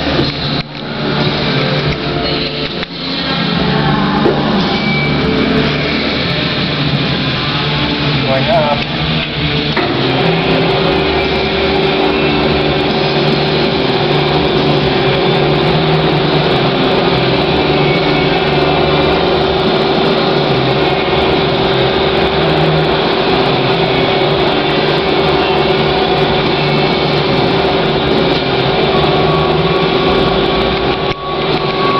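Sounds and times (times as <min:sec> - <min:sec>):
electric hoist motor drone: 0:00.0 - 0:31.9.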